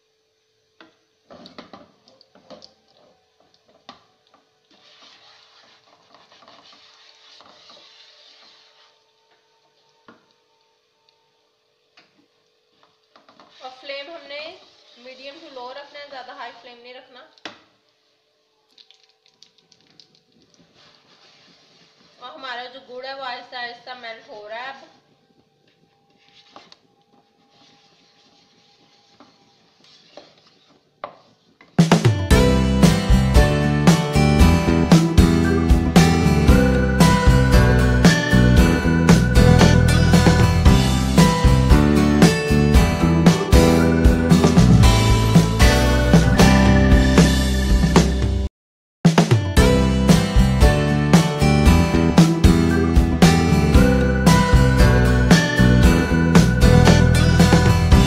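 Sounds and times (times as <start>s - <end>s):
spatula stirring and scraping: 4.4s - 9.1s, 12.8s - 16.4s, 20.6s - 22.4s, 27.3s - 31.5s
sugar sizzling in a pan: 12.7s - 16.8s.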